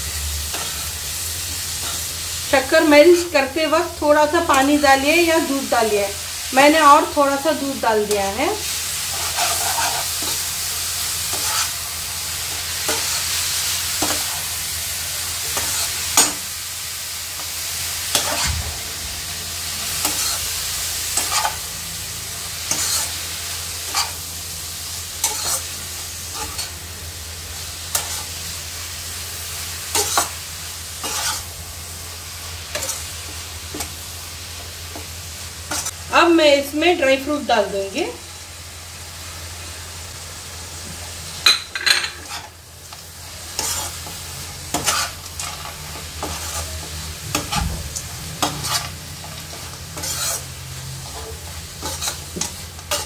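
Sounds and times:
vermicelli sizzling in a pan: 0.0s - 53.0s
spatula scraping and knocking pan: 43.6s - 53.0s.

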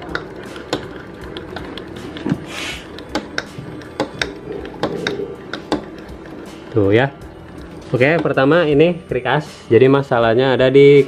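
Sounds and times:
scraping hiss: 2.4s - 2.9s.

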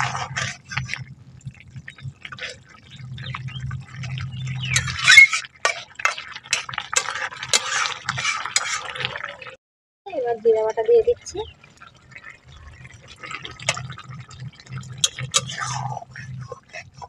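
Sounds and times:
metal spatula scraping pan: 0.0s - 1.0s, 4.6s - 9.2s, 15.0s - 17.0s
curry bubbling and sloshing: 0.0s - 9.6s, 11.2s - 17.0s.

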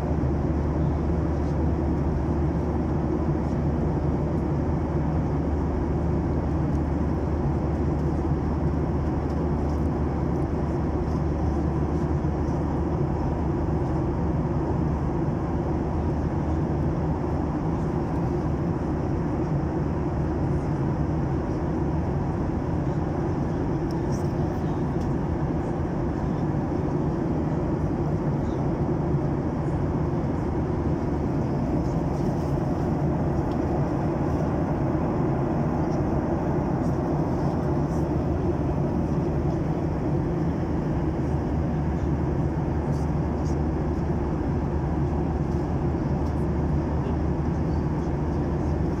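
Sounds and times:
airplane cabin rushing drone: 22.2s - 48.9s.

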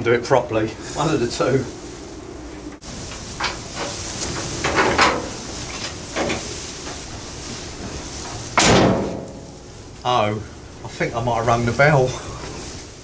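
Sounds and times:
metal door scraping and knocking: 3.4s - 5.4s.

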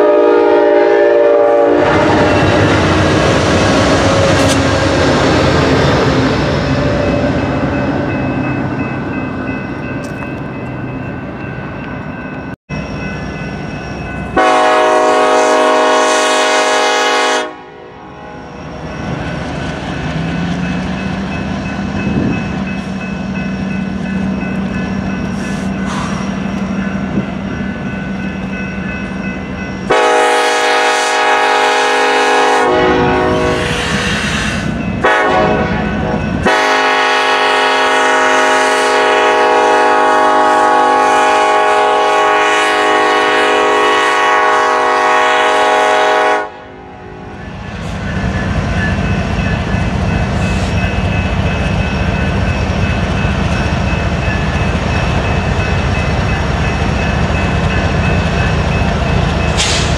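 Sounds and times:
locomotive horn blasts: 0.0s - 2.6s, 14.4s - 18.4s, 29.9s - 34.0s, 35.0s - 47.3s
diesel locomotives rumbling: 0.0s - 59.9s.

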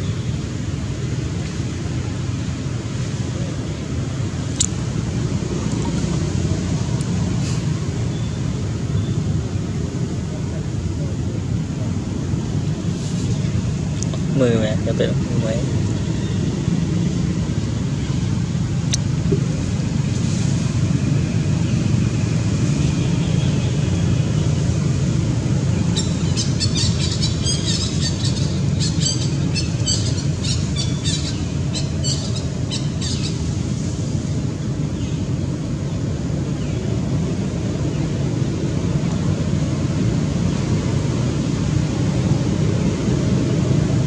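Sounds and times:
bird chirping: 25.9s - 33.4s.

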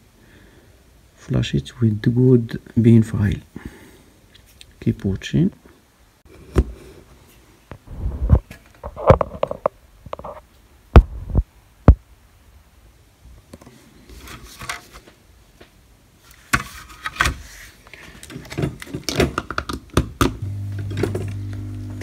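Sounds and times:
scraping and rustling: 13.6s - 15.2s.

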